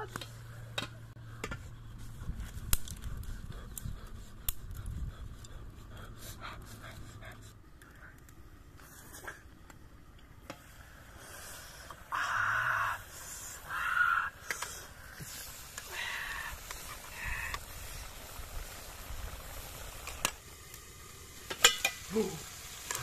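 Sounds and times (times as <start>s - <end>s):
wood fire crackling: 0.0s - 23.0s
crow cawing: 12.1s - 13.0s, 13.7s - 14.3s.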